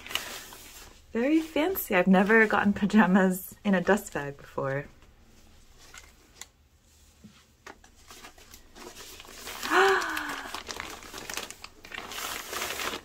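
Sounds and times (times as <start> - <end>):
cloth rustling: 0.0 - 3.0, 5.2 - 13.0
plastic wrapping crinkling: 0.0 - 3.0, 7.8 - 13.0.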